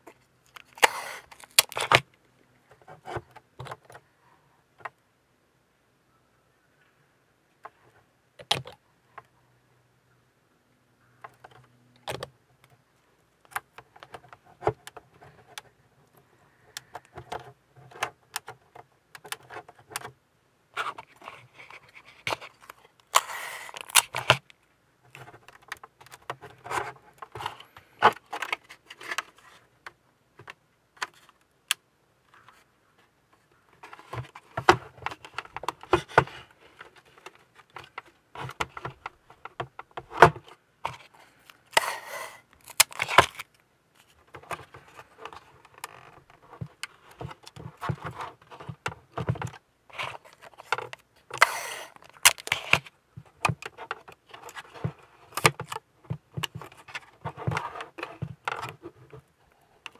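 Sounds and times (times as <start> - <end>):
masking tape rustling: 0.0 - 2.2, 20.8 - 29.8, 33.3 - 59.9
plastic parts clicking and knocking: 0.0 - 4.0, 7.6 - 9.3, 11.2 - 12.8, 13.4 - 20.2, 20.8 - 32.6, 33.3 - 59.9.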